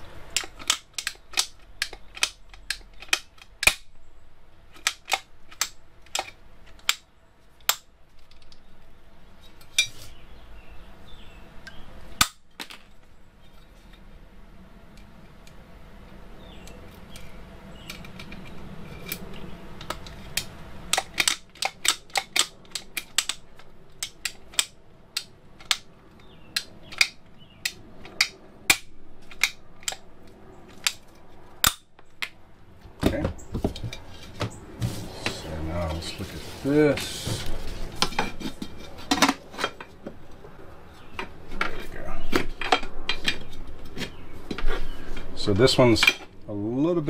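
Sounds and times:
rivet gun clicks and snaps: 0:00.4 - 0:03.9, 0:04.8 - 0:07.9, 0:19.8 - 0:30.0, 0:31.6 - 0:32.3.

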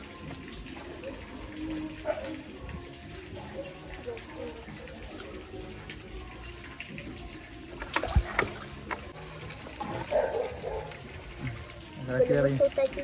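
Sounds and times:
water trickling and splashing: 0:00.0 - 0:13.0
sharp splashes: 0:07.7 - 0:10.8.

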